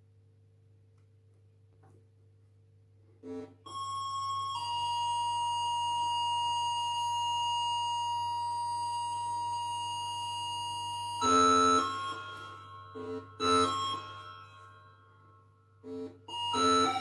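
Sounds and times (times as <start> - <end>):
high synthesizer tone: 15.9 - 17.0.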